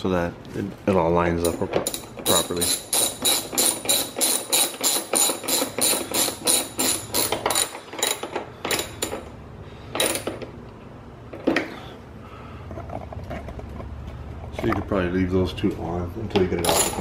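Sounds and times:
hand ratchet clicking: 0:01.8 - 0:09.3.

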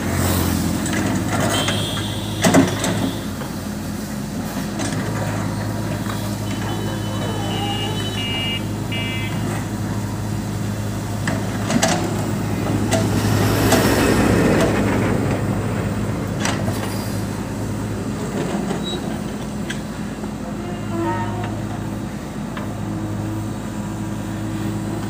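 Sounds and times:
diesel engine running under load: 0:00.0 - 0:25.0
high beeping: 0:07.3 - 0:09.5.

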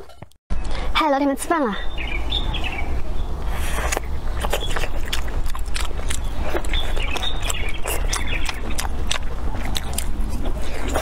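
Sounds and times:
mouth clicks and smacks: 0:03.4 - 0:11.0
person biting and chewing food: 0:03.4 - 0:11.0.

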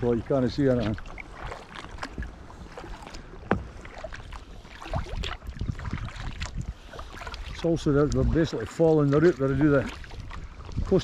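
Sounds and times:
paddle strokes splashing water: 0:00.0 - 0:11.0.

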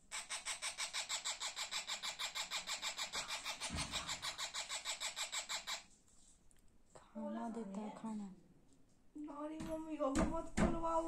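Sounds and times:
parrot chick begging call: 0:00.1 - 0:05.9.

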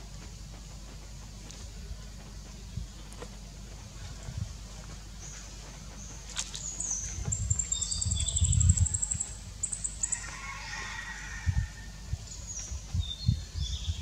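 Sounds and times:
low uneven rumble: 0:00.0 - 0:14.0
small birds chirping: 0:05.2 - 0:10.3.

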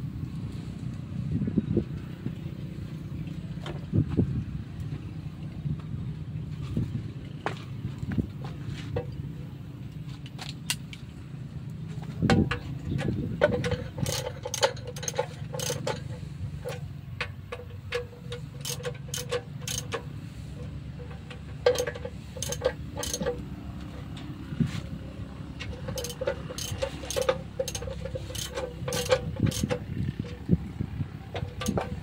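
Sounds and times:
low steady rumble: 0:00.0 - 0:32.0
hand tools clicking on metal: 0:12.3 - 0:24.4, 0:25.6 - 0:30.6, 0:31.2 - 0:32.0
ratchet clicking: 0:12.5 - 0:24.0, 0:25.6 - 0:30.5, 0:31.3 - 0:32.0.

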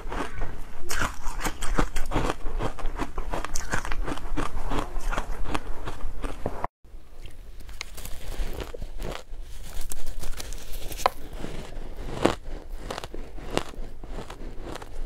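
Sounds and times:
crunching shaved ice: 0:07.7 - 0:15.0.

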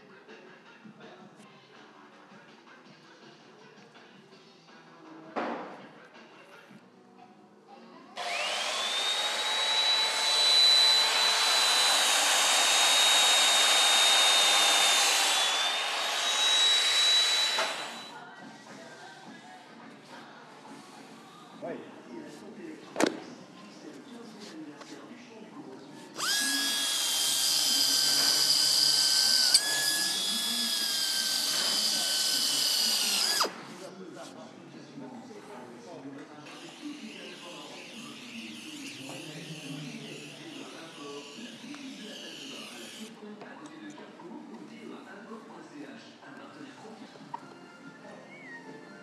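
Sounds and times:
high-speed motor whine: 0:08.2 - 0:18.1, 0:26.2 - 0:33.5.

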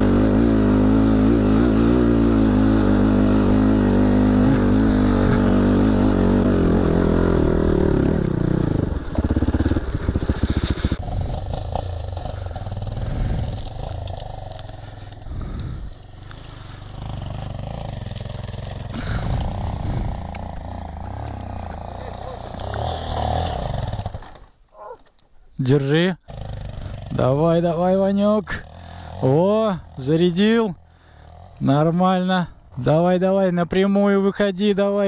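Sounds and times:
motorcycle engine revving and idling: 0:00.0 - 0:25.0, 0:26.2 - 0:33.2.

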